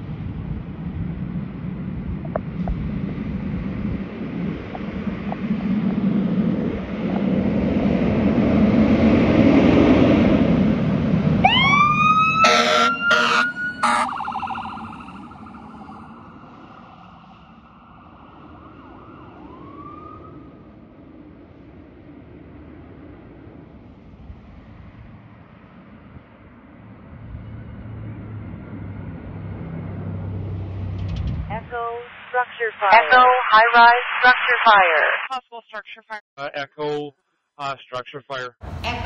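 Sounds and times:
electronic siren wailing: 0:11.4 - 0:20.5
air horn blasts: 0:12.4 - 0:14.2.

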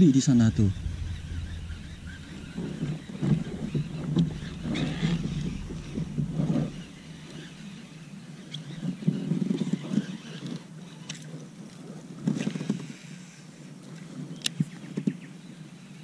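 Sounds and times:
low rumble: 0:00.0 - 0:09.0.

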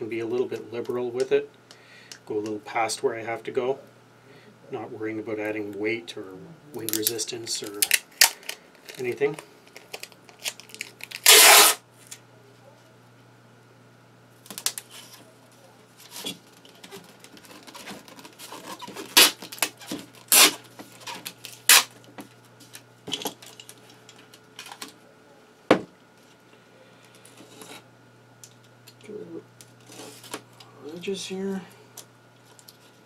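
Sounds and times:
packing tape ripping off roll: 0:06.9 - 0:12.2, 0:14.4 - 0:15.2, 0:16.0 - 0:22.0.

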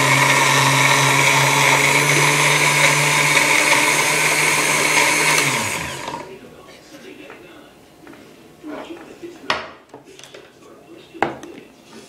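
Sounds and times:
blender running: 0:00.0 - 0:06.4.

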